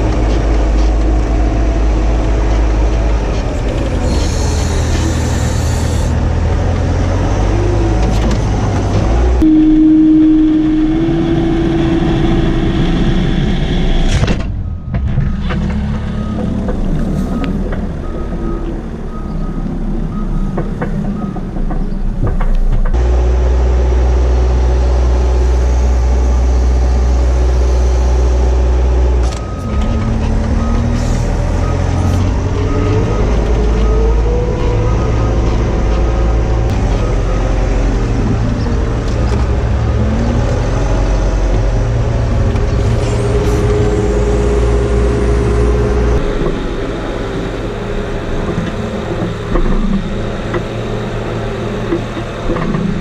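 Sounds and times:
diesel engine running: 0.0 - 53.0
hydraulics whining: 0.0 - 53.0
reversing alarm beeping: 9.4 - 21.6, 29.4 - 35.6.

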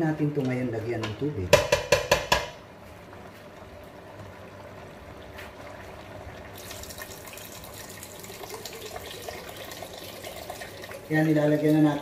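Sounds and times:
water pouring into metal pot: 6.4 - 12.0.

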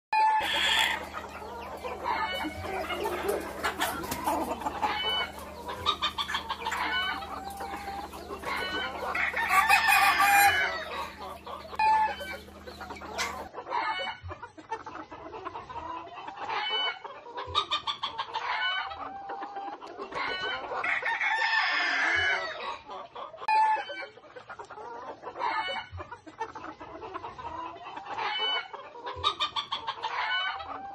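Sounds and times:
rooster crowing: 0.2 - 4.0, 4.6 - 13.5, 20.8 - 22.6
chickens clucking: 0.2 - 30.9
steady low hum: 0.4 - 13.5.

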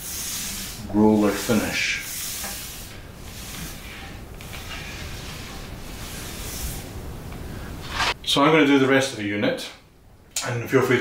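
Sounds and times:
paint roller swishes: 0.0 - 8.2
soft room noise: 0.0 - 11.0.

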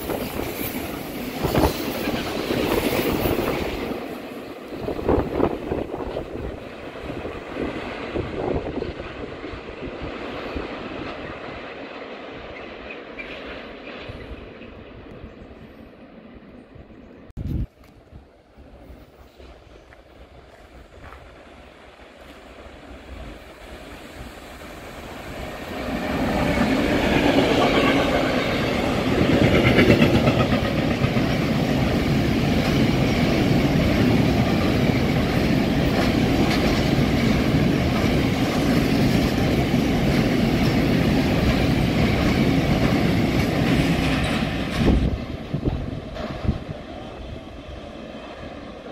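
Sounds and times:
freight train rumbling: 0.0 - 48.9
wheels clattering on rails: 25.7 - 47.1.

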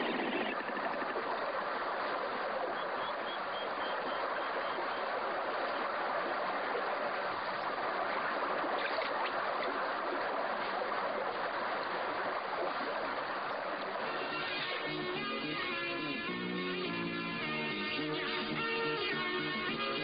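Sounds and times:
running water rushing: 0.0 - 20.0
music: 14.0 - 20.0.

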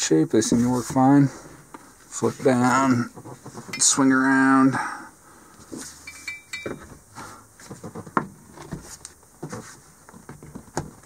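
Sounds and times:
high metallic clink: 6.0 - 6.9.

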